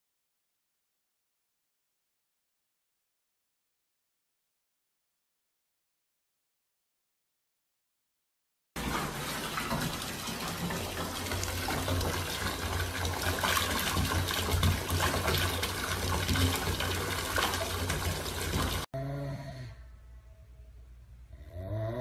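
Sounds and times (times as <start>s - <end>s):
tap water pouring into bathtub: 8.8s - 18.9s.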